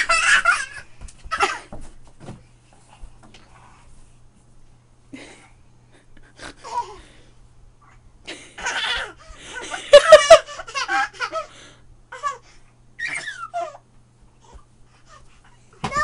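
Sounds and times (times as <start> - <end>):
young child laughing: 0.0 - 1.8, 8.3 - 11.5.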